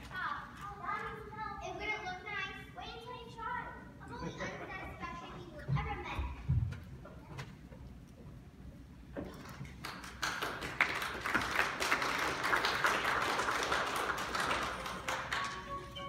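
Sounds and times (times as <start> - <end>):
audience applauding: 9.5 - 16.0.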